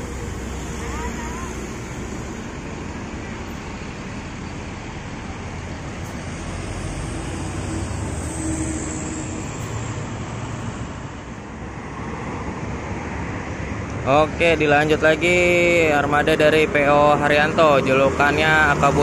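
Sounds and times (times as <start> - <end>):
coach diesel engine rumble: 0.0 - 11.8
road traffic: 0.0 - 19.0.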